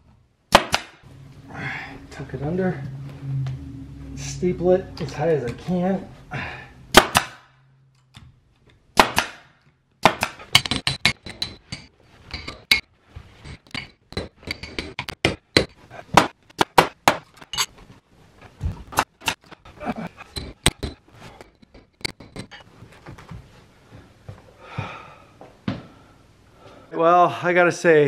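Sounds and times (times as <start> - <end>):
pneumatic stapler shots: 0.5 - 1.0, 6.9 - 7.5.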